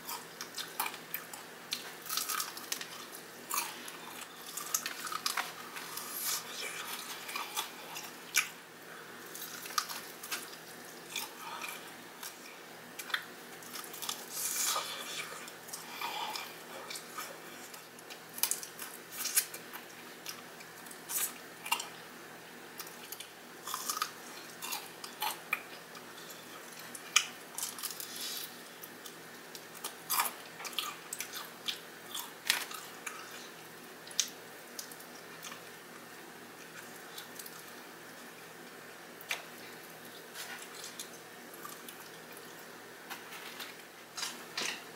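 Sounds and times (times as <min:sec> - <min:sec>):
crunching fried chicken: 0:00.1 - 0:08.6, 0:09.2 - 0:22.0, 0:22.8 - 0:35.8.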